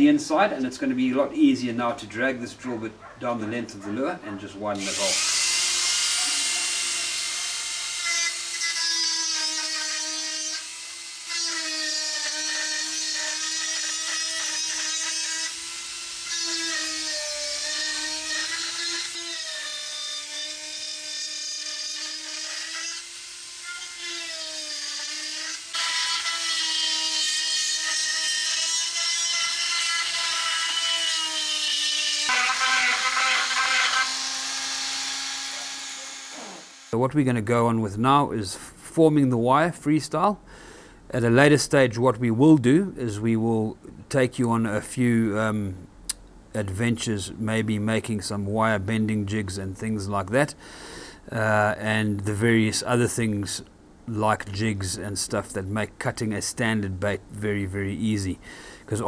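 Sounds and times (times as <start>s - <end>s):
drill bit grinding wood: 4.7s - 37.0s
rotary tool whining: 4.8s - 37.0s.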